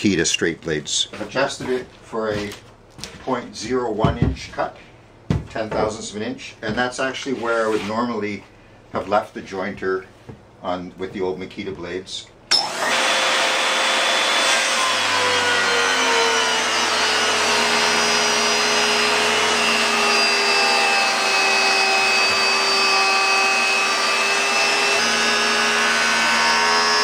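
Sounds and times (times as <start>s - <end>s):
jointer planing wood: 12.6s - 27.0s.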